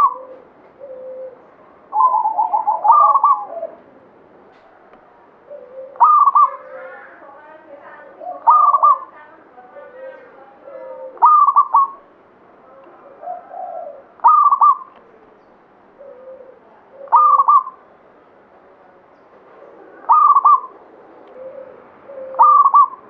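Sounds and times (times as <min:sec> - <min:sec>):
dove cooing: 0:00.0 - 0:04.0, 0:05.4 - 0:07.2, 0:08.0 - 0:09.2, 0:09.8 - 0:12.1, 0:13.0 - 0:15.3, 0:16.0 - 0:17.9, 0:19.6 - 0:23.0.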